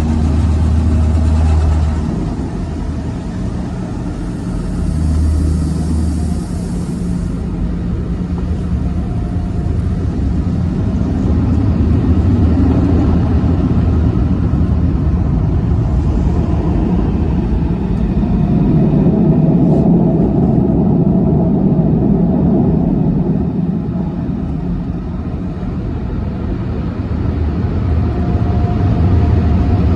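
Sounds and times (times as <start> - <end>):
car wash machinery rumble: 0.0 - 29.9
water spray hiss: 4.3 - 7.8.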